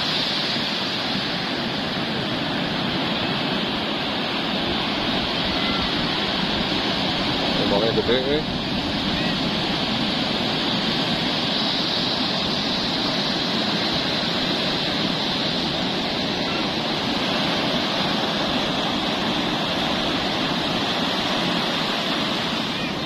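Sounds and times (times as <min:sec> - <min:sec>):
ocean surf breaking on beach: 0:00.0 - 0:23.0.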